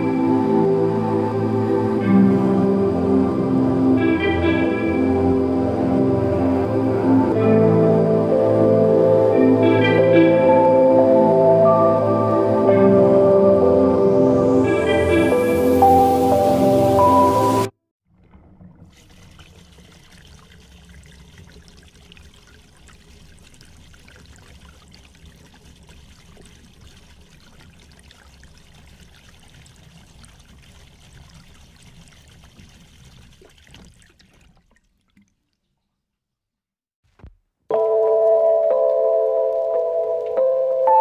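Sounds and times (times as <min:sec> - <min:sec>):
trickling water: 0:18.0 - 0:36.3.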